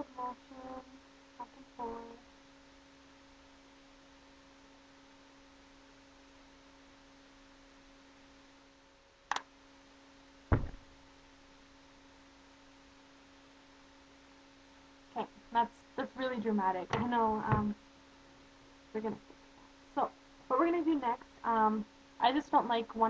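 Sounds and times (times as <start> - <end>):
electrical hum and hiss: 0.0 - 23.0
deep knock: 10.5 - 10.9.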